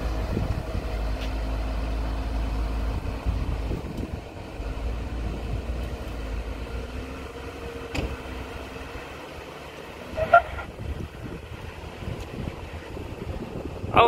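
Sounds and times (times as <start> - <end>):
car engine droning under load: 0.0 - 14.0.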